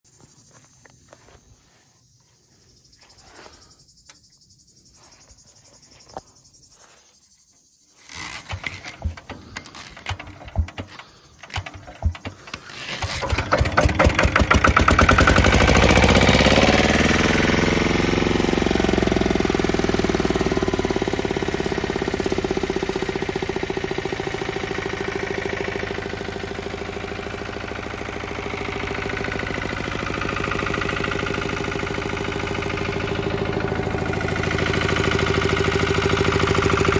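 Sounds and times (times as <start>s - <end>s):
diesel engine starting and running: 8.0s - 36.9s
diesel engine knocks: 8.6s - 17.5s, 19.2s - 36.9s.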